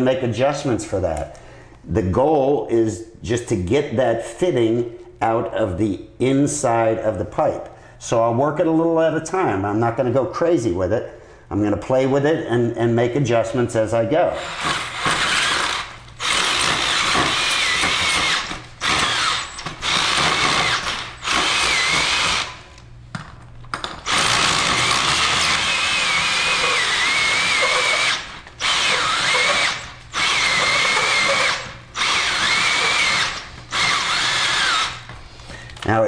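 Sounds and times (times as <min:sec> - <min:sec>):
cordless drill hole saw cutting: 0:14.4 - 0:22.6, 0:24.1 - 0:35.1.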